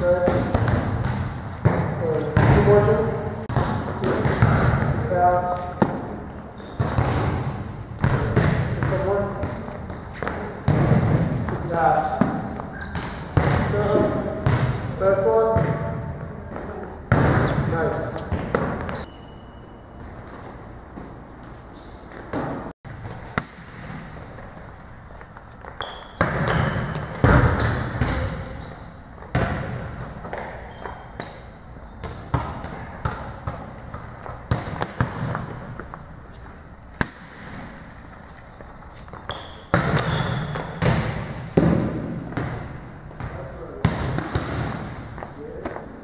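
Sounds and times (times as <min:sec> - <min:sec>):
ball hitting court floor: 0:00.0 - 0:19.1, 0:21.0 - 0:24.6, 0:25.6 - 0:31.4, 0:32.0 - 0:35.8, 0:37.0 - 0:37.9, 0:39.1 - 0:45.9
hand slapping volleyball: 0:25.3 - 0:28.5, 0:32.0 - 0:35.7, 0:36.9 - 0:37.7, 0:39.1 - 0:45.8.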